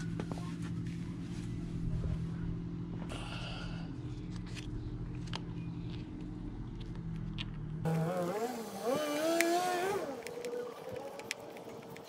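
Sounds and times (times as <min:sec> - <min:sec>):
steady low hum: 0:00.0 - 0:08.8.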